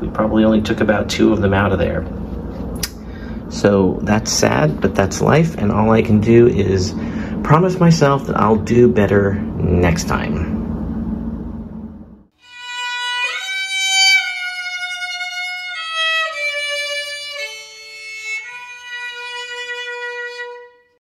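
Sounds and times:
low room hum: 0.0s - 21.0s
slow violin melody: 12.4s - 21.0s.

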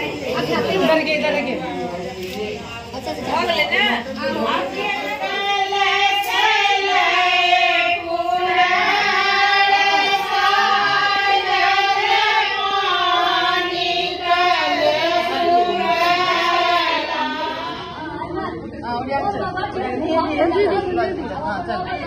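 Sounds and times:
high voices singing: 2.4s - 18.6s.

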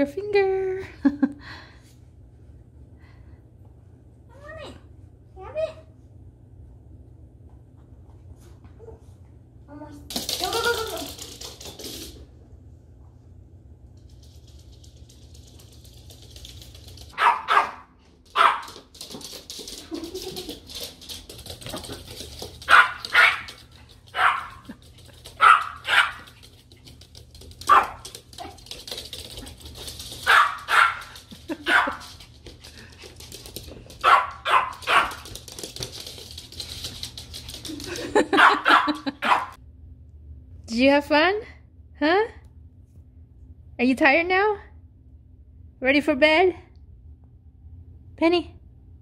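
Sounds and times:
puppy yapping: 17.2s - 18.6s.

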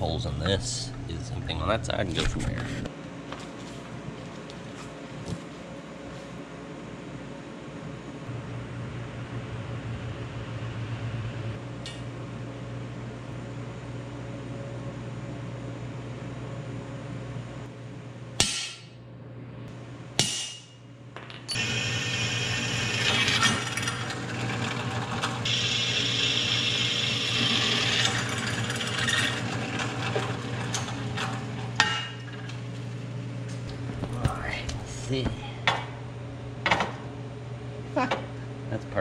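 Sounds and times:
drill bit cutting metal: 21.5s - 24.4s, 25.5s - 29.4s
drill press motor humming: 21.5s - 32.6s.

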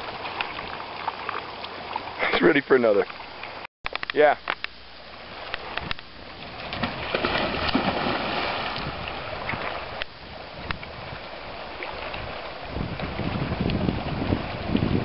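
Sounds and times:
dog splashing in water: 6.6s - 9.0s.

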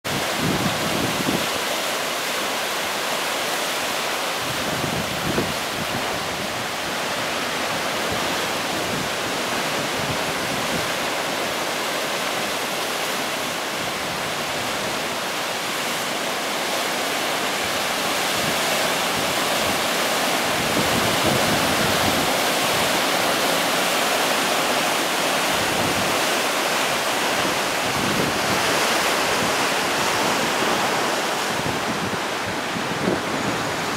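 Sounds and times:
ocean waves breaking on boulders: 0.0s - 33.9s
wind rumble on microphone: 0.1s - 1.6s, 4.4s - 11.2s, 17.8s - 23.1s, 27.2s - 33.9s.

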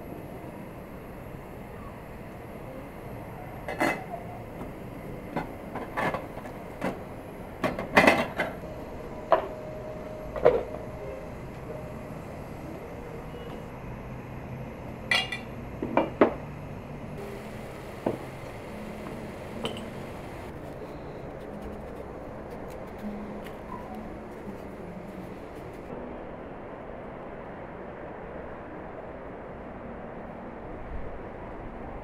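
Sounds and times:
kitchen utensils and dishes clinking: 3.7s - 4.2s, 15.1s - 15.5s, 19.6s - 20.0s.

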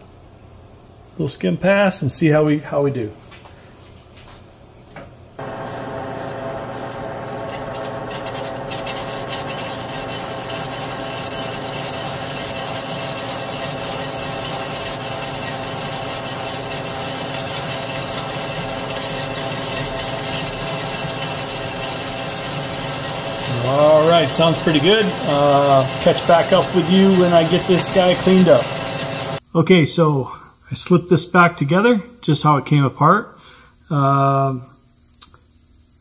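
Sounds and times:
metal lathe humming: 5.4s - 29.4s
turning tool scraping metal: 5.4s - 29.4s.

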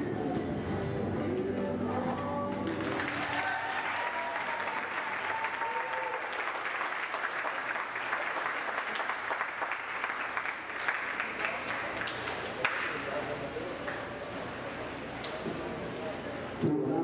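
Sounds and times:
audience applauding: 2.5s - 13.0s.

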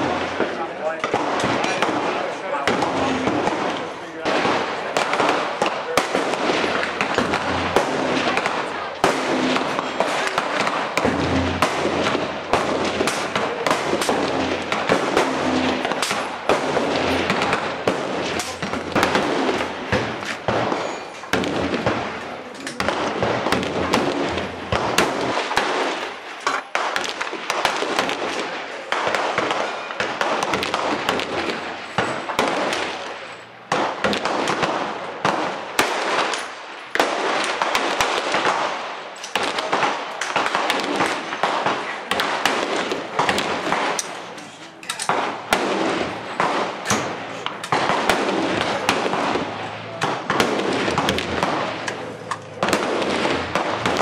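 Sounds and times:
rapid rifle gunfire: 0.0s - 22.2s, 22.8s - 36.4s, 37.0s - 44.4s, 45.0s - 54.0s.

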